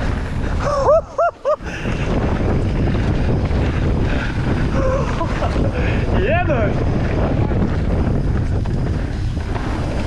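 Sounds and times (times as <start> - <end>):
mountain bike rumble: 0.0 - 10.0
wind buffeting microphone: 0.0 - 10.0.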